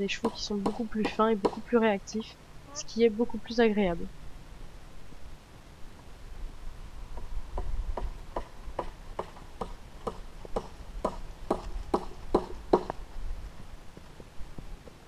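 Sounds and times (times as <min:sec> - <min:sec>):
horse hoofbeats walking: 0:07.1 - 0:15.0.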